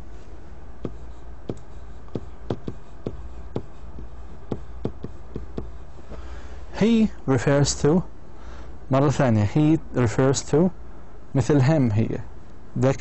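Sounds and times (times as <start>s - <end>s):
low electrical hum: 0.0s - 13.0s
pen clicks and taps: 0.8s - 5.8s.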